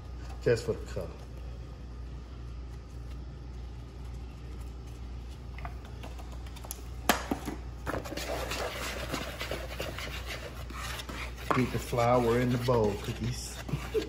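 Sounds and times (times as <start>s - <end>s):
low steady hum: 0.0s - 14.0s
spoon stirring flour in plastic bowl: 7.9s - 14.0s.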